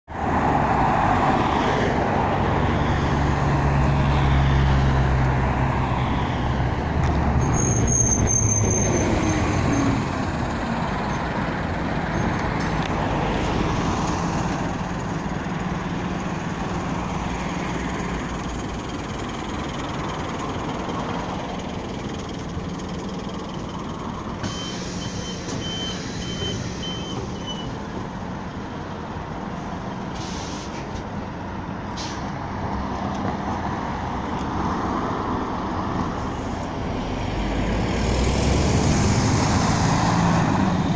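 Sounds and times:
road traffic: 0.0s - 40.9s
bus diesel engine rumble: 0.1s - 40.9s
high squeal: 7.3s - 10.1s.

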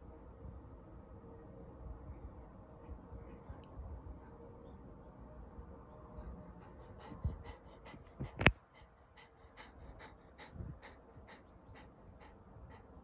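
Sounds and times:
dog panting rapidly: 6.2s - 13.0s.

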